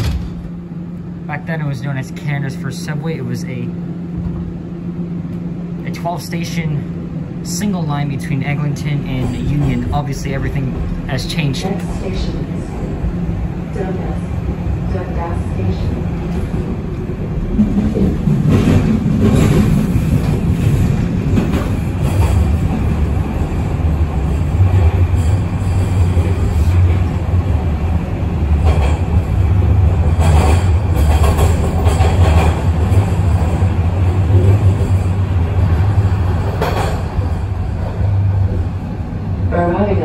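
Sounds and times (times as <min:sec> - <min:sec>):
subway train rumble and hum: 0:00.0 - 0:40.0
wheels clacking over rails: 0:17.5 - 0:38.6.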